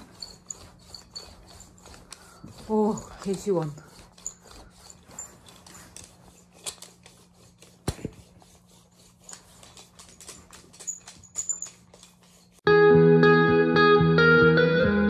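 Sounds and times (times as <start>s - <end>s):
handling clicks and rustles: 0.0s - 8.2s, 9.2s - 12.6s.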